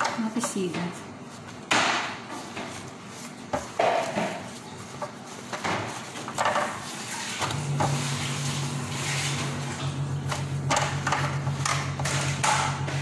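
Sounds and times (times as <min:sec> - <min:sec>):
flatbread rustling and tearing: 0:01.1 - 0:10.6.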